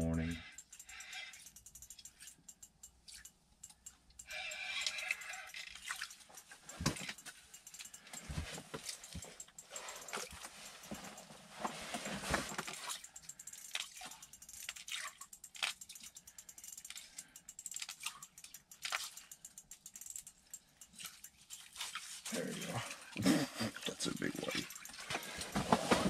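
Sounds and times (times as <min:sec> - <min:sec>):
tackle clicks and rattles: 0:00.0 - 0:26.0
clothing rustling: 0:08.2 - 0:12.9, 0:25.0 - 0:26.0.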